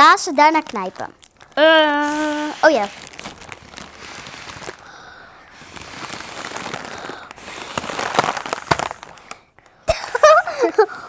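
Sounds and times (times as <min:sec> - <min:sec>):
foil crinkling and crackling: 0:00.0 - 0:11.0
breathy hiss through straws: 0:04.0 - 0:08.2.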